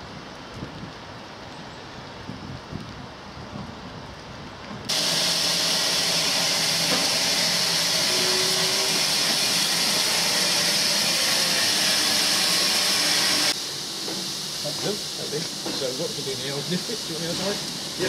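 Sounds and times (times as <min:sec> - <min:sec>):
steam hissing from locomotive: 0:04.9 - 0:18.0.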